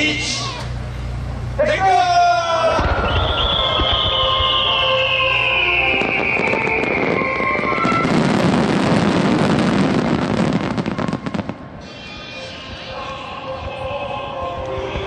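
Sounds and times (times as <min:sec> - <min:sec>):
low rumble: 0:02.6 - 0:09.5
dense firework crackling: 0:02.6 - 0:12.2
firework whistle sliding down: 0:02.8 - 0:12.8.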